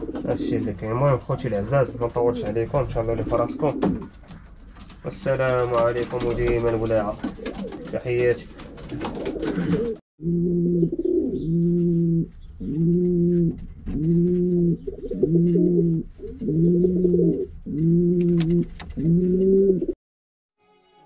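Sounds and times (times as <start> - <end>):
pigeon cooing: 8.5 - 20.0.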